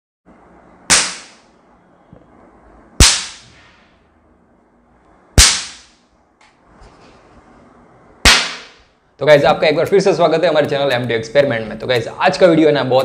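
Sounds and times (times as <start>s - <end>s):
cap gun bangs: 5.4s - 5.9s, 8.3s - 8.8s.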